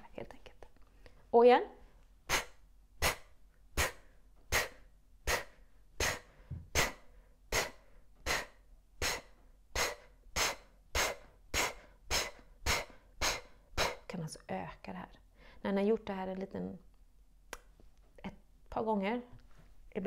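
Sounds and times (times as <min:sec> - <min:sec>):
woman's sharp exhaling puffs: 0:02.3 - 0:14.1.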